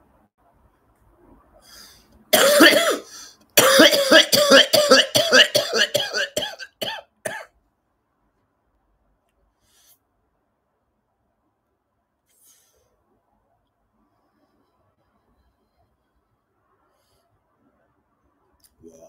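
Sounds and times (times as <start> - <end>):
man coughing: 2.3 - 7.5.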